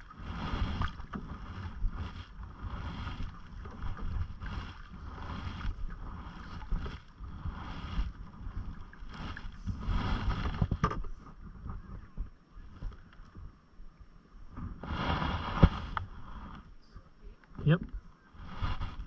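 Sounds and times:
paddle swishing water: 0:00.0 - 0:13.5, 0:14.5 - 0:17.5, 0:18.1 - 0:19.0
wind rumble on microphone: 0:00.0 - 0:19.0.

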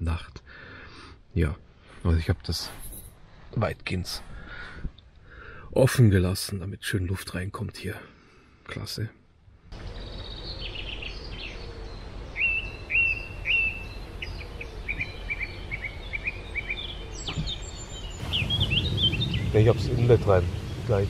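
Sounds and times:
birds singing and chirping: 0:09.7 - 0:21.0.

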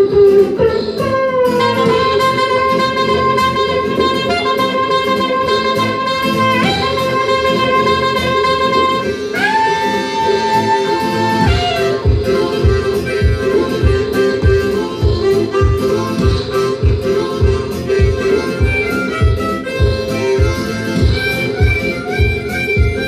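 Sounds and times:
backing music: 0:00.0 - 0:23.0
saxophone solo: 0:00.0 - 0:23.0.

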